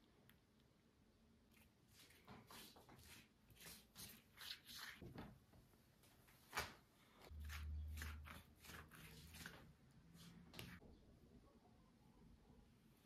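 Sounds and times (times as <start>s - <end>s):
pastry sheet rustling: 6.2s - 10.8s.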